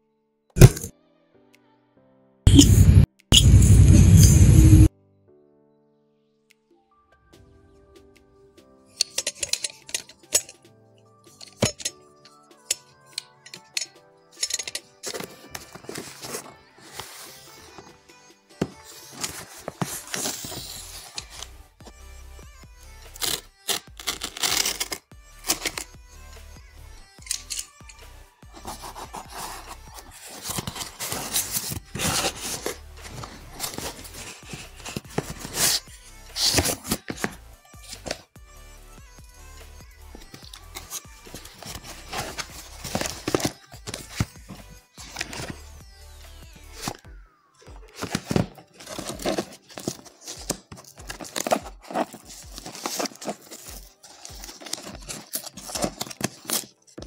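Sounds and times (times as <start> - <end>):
cardboard box tearing and rustling: 19.0 - 21.5, 28.6 - 37.4, 40.8 - 44.3, 47.8 - 56.8.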